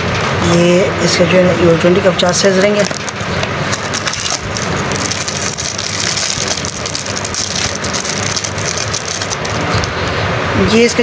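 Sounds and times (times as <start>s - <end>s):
wrapping crinkling and tearing: 2.4s - 10.0s.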